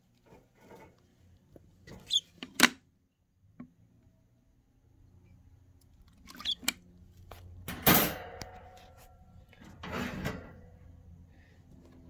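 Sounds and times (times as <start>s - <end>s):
sharp knock on cage: 7.8s - 8.6s.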